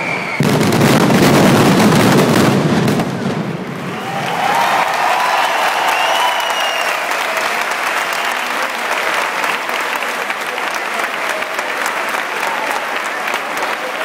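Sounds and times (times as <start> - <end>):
crowd applauding and cheering: 3.7 - 14.0.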